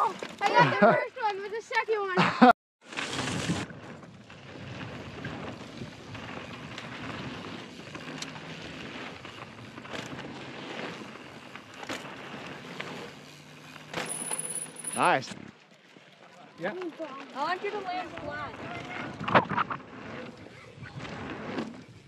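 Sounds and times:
tyre and wind noise: 2.9 - 14.1, 17.7 - 22.0
bike knocking over ground: 13.8 - 14.4.

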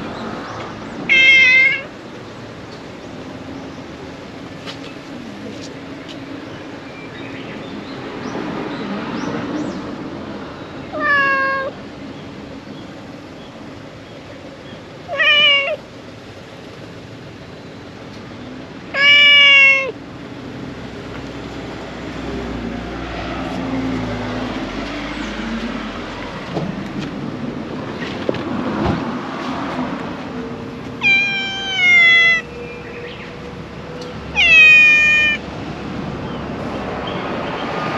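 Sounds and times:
cat meowing: 1.1 - 1.9, 10.9 - 11.8, 15.1 - 15.8, 19.0 - 20.0, 31.0 - 32.5, 34.3 - 35.4.

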